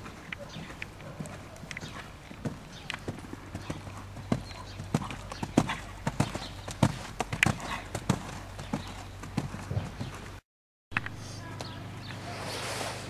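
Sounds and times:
hoofbeats on sand: 0.0 - 10.3.

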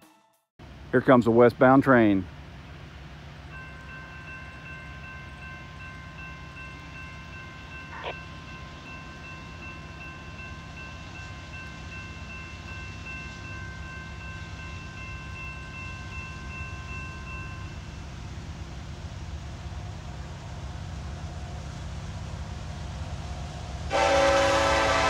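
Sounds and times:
diesel locomotives rumbling: 0.6 - 25.0.

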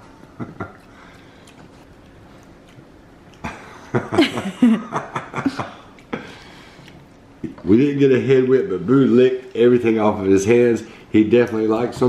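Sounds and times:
man chuckling: 0.2 - 1.1, 3.4 - 6.4.

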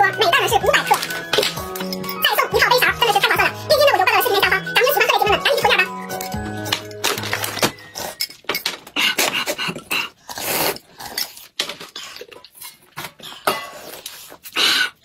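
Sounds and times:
chopsticks clinking on tableware: 0.8 - 2.3
slurping broth from a bowl: 9.4 - 13.0.

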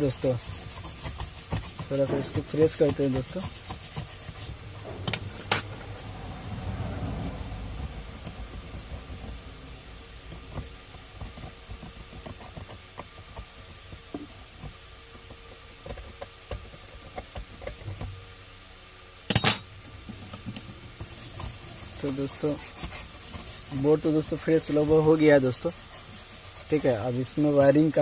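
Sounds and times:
tool scraping circuit board: 0.0 - 6.2, 21.0 - 28.0.

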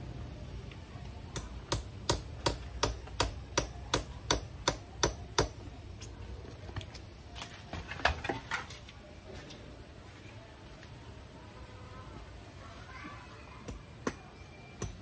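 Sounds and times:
hammer strikes: 1.3 - 5.6.

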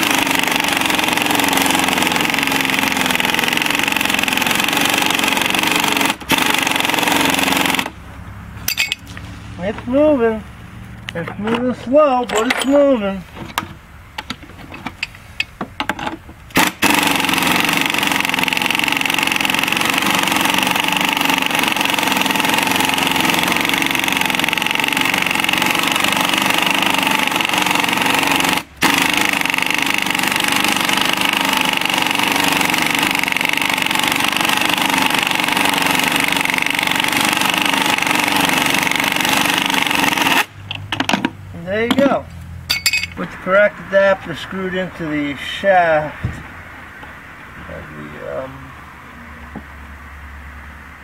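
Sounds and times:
pneumatic impact wrench hammering: 0.0 - 8.0, 8.6 - 9.2, 12.2 - 43.2.

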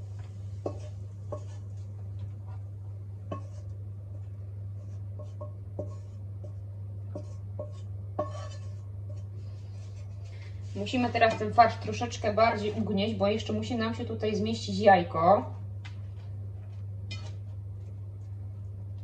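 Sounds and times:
steady low hum: 0.0 - 19.0
spatula scraping frying pan: 0.6 - 1.8, 3.3 - 3.8, 4.8 - 11.7.

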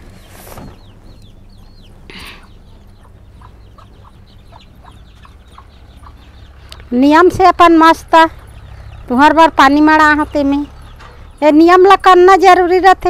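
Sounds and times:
chicks peeping: 0.0 - 11.4
chicken clucks: 2.1 - 6.9.

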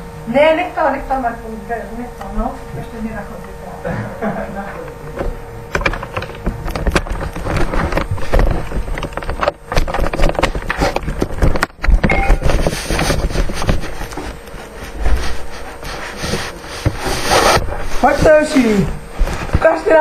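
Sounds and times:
clatter of knocks and clicks: 5.7 - 12.5.

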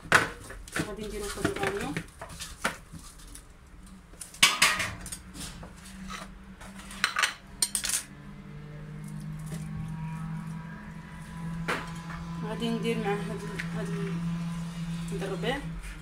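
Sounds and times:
metal platter clattering: 4.4 - 5.2
low steady hum: 7.7 - 16.0.

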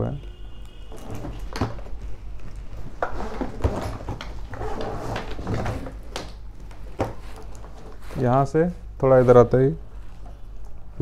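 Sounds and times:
plastic connectors and conduit rustling: 0.9 - 8.3.

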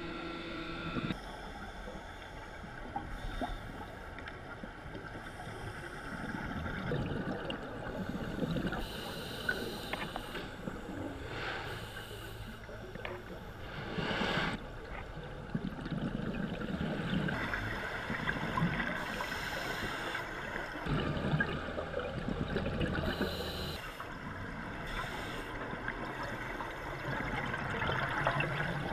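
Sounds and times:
steady water hiss: 1.1 - 15.6, 16.5 - 20.9, 22.6 - 28.9
bubbles gurgling underwater: 6.6 - 8.8, 15.4 - 17.5, 20.8 - 23.3.

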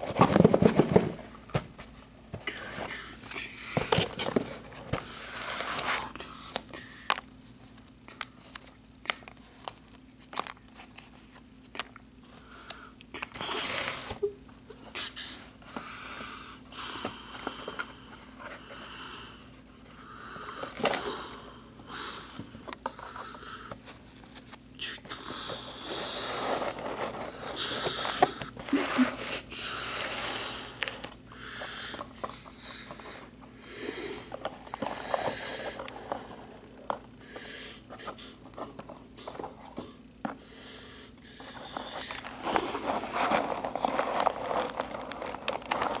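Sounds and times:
cardboard rustling and scraping: 0.0 - 2.0, 26.1 - 31.2, 41.4 - 46.0.

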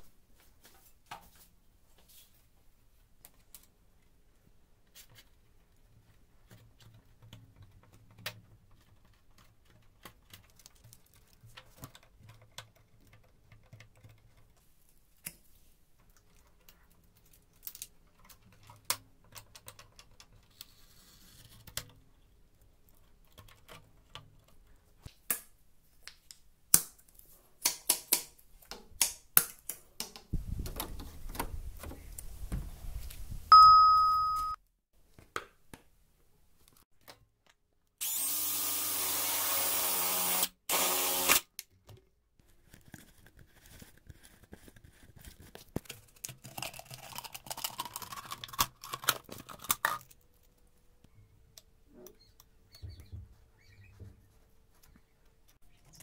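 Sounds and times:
short electronic beep: 33.5 - 34.6
drill boring through plastic: 38.0 - 41.4.

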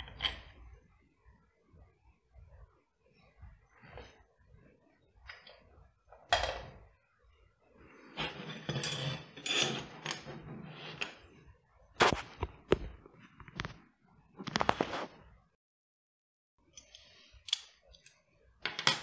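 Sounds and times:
metal tray scraping on wood: 8.1 - 11.2.

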